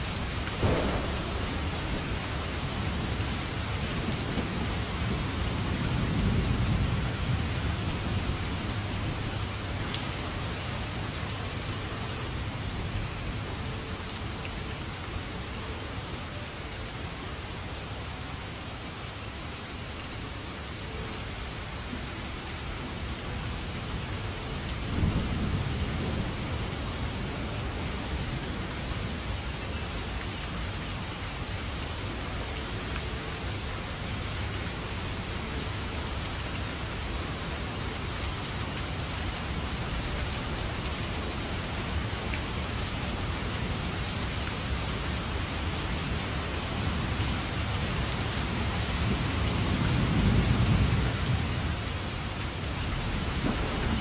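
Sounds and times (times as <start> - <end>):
heavy rain hissing: 0.0 - 54.0
thunder rumble: 0.3 - 9.2, 52.9 - 54.0.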